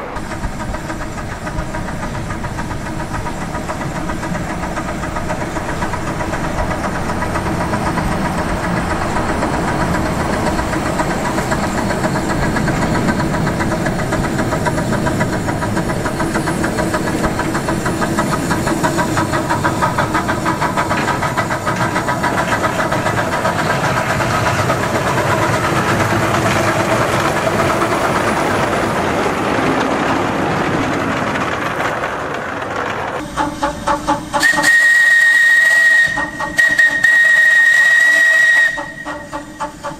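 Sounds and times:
steam hissing: 0.0s - 29.4s, 33.2s - 39.9s
locomotive mechanical running noise: 0.0s - 39.9s
steam whistle: 33.4s - 39.9s.

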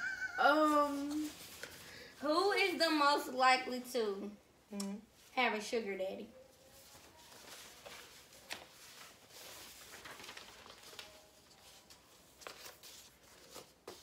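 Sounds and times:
paper rustling: 6.6s - 14.0s.

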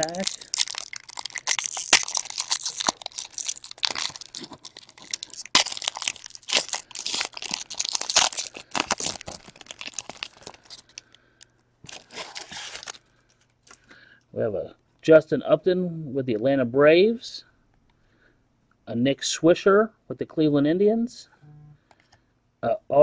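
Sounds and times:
foil wrapper tearing and crinkling: 0.0s - 11.2s, 11.9s - 13.1s.

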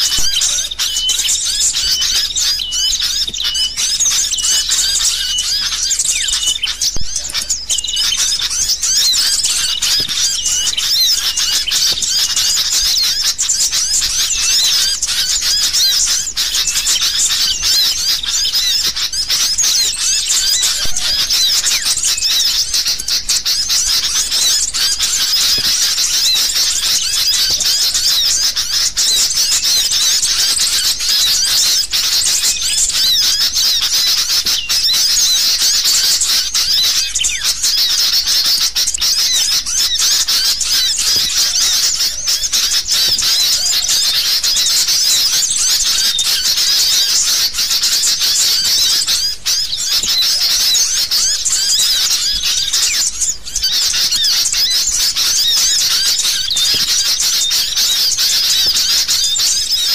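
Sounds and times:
birds chattering and chirping: 0.0s - 59.9s.

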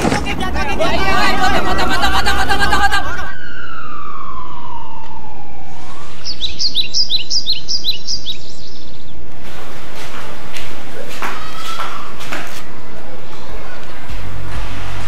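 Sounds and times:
falling tone: 0.0s - 7.8s
songbird chirping: 6.0s - 9.3s.

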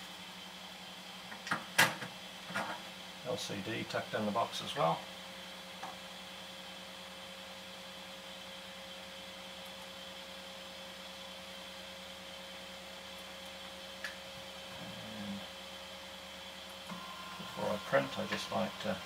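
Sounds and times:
cooling fans humming: 0.0s - 19.0s
faint high whine: 14.6s - 19.0s.

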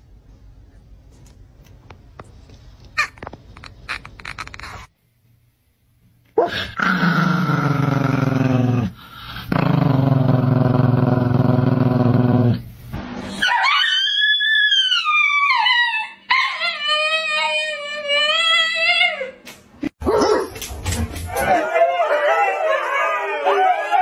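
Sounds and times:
small dog growling: 6.4s - 12.6s
dog howling: 21.3s - 24.0s.

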